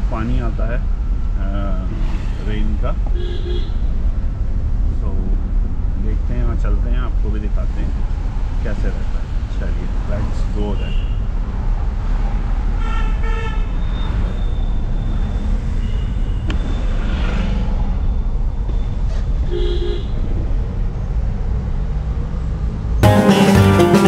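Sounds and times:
diesel engine and road noise: 0:00.0 - 0:24.0
car horn toots: 0:03.1 - 0:03.8, 0:12.8 - 0:14.0, 0:19.5 - 0:20.2.

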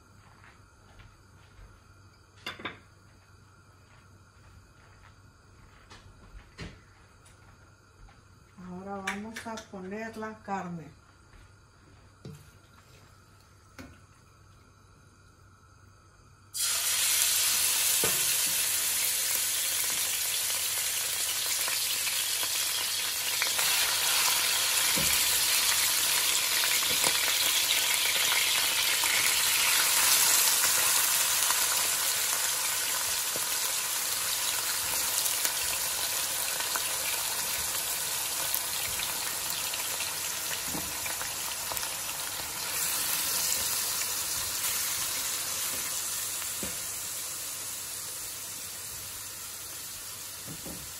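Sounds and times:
meat sizzling in hot oil: 0:16.5 - 0:50.9.

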